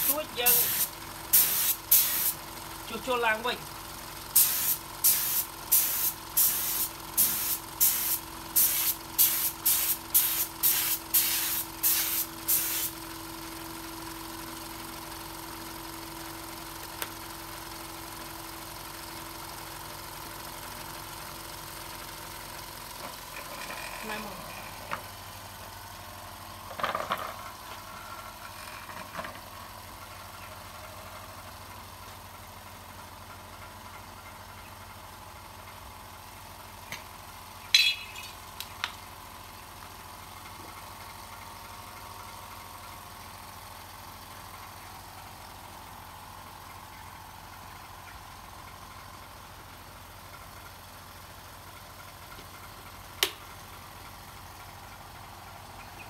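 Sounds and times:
electric air compressor humming: 0.0 - 3.0, 3.7 - 15.6.

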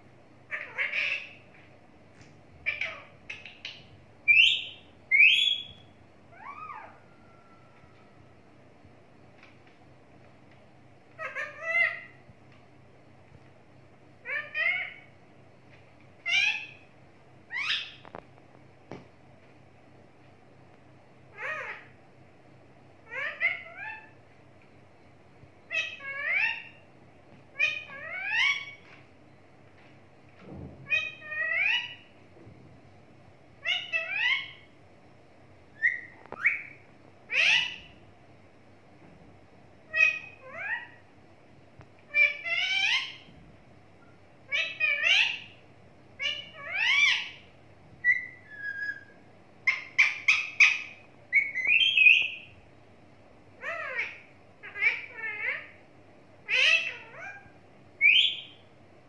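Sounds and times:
parakeet calling: 0.5 - 1.6, 2.6 - 7.7, 11.1 - 12.2, 14.2 - 15.2, 16.2 - 16.9, 17.5 - 18.1, 21.3 - 22.0, 23.0 - 24.2, 25.7 - 26.9, 27.5 - 28.9, 30.8 - 32.1, 33.6 - 34.8, 35.8 - 38.0, 39.9 - 41.1, 42.1 - 43.3, 44.5 - 45.6, 46.2 - 52.6, 53.6 - 55.8, 56.4 - 58.6.

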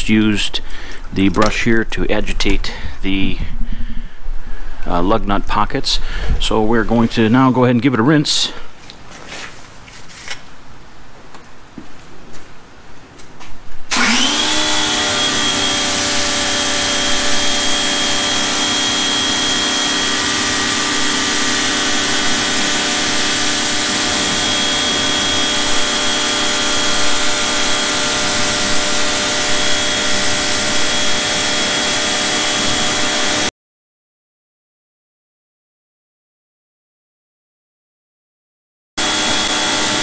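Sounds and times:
water jet hissing: 13.9 - 33.4
pressure washer running: 13.9 - 33.5, 39.0 - 40.0.

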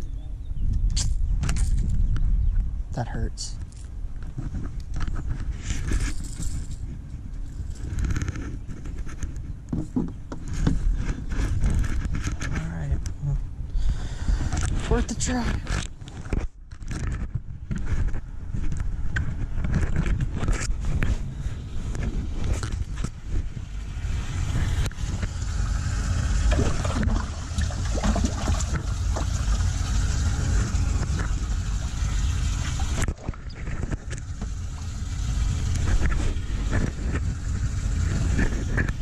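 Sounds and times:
wind rumble: 0.0 - 39.0
fabric rubbing on microphone: 14.8 - 23.7.

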